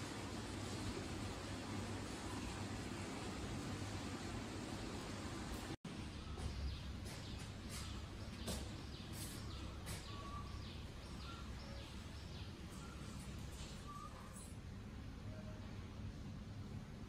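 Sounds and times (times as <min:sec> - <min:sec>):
faint bird chirps: 0:06.2 - 0:14.6.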